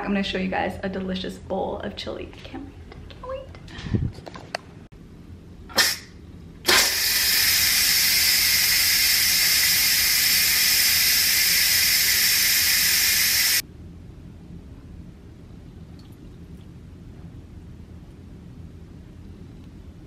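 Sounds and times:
steam hissing from valve: 5.8s - 6.1s, 6.7s - 13.6s
valve turning hiss: 6.7s - 13.6s.

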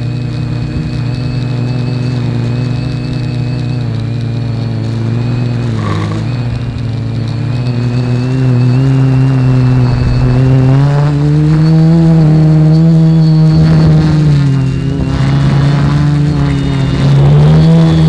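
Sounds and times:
quadcopter motors humming: 0.0s - 18.0s.

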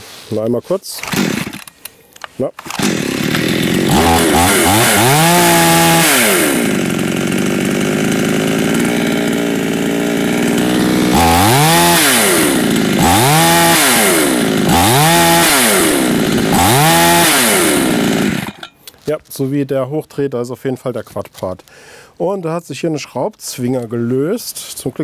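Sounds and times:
chainsaw idling and revving: 1.0s - 1.8s, 2.6s - 18.7s.

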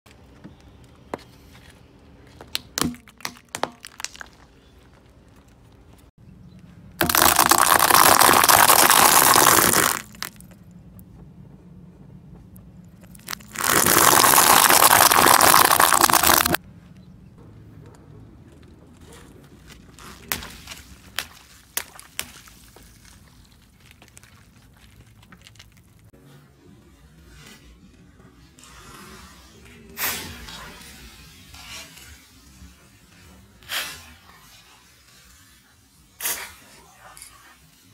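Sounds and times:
dry pasta crunching under tyre: 2.4s - 5.9s, 7.0s - 10.6s, 13.0s - 16.6s, 19.1s - 26.2s
plastic container cracking: 7.0s - 10.4s, 13.2s - 16.6s.

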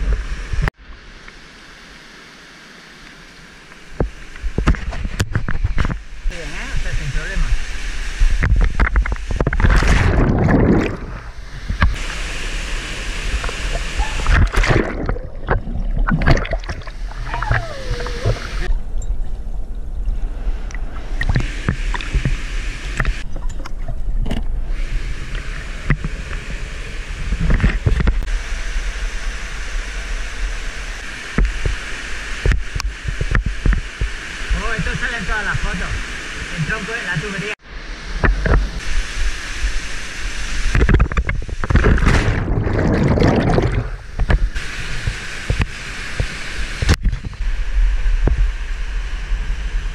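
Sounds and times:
rushing stream water: 0.0s - 18.8s, 24.7s - 48.3s
muffled underwater gurgling: 13.2s - 18.7s, 40.8s - 44.6s
splashing through pools: 13.3s - 18.7s.

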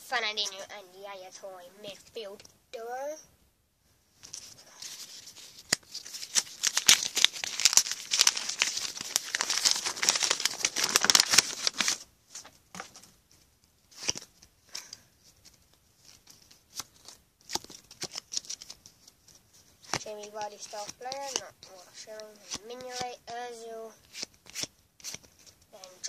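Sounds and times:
rustles and taps of handling: 4.2s - 6.5s, 12.3s - 23.3s
wrapper tearing and crinkling: 4.3s - 12.0s, 15.4s - 18.8s.

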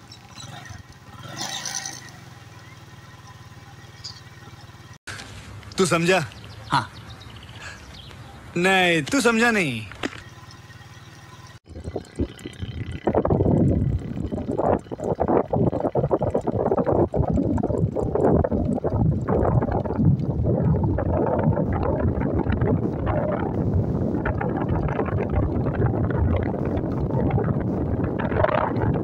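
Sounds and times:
motorcycle engine running: 0.0s - 29.0s
wind buffeting microphone: 11.6s - 29.0s.

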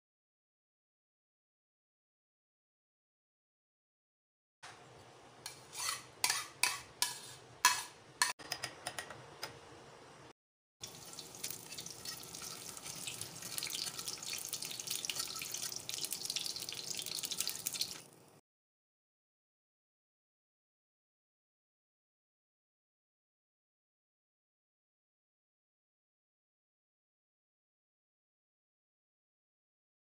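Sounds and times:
food sizzling in oil: 10.8s - 18.4s.

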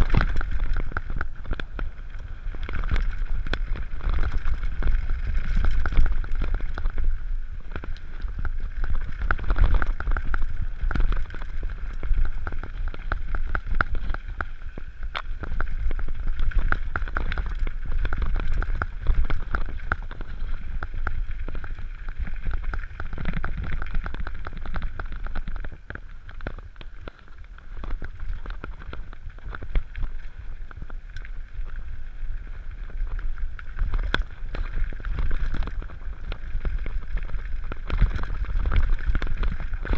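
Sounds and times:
wind buffeting microphone: 0.0s - 26.0s
bike rattling and clicking: 0.0s - 39.9s
tyres over loose stones: 0.0s - 39.9s.

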